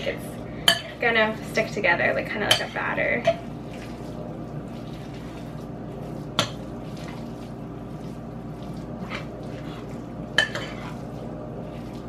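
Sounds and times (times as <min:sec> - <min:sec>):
fork stirring wet mixture: 0:02.5 - 0:12.0.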